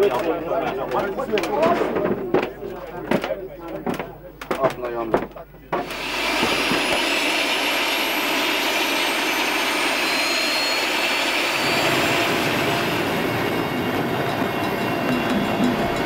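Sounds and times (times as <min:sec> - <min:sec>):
helicopter rotor drone: 0:05.9 - 0:16.0
helicopter turbine whine: 0:05.9 - 0:16.0.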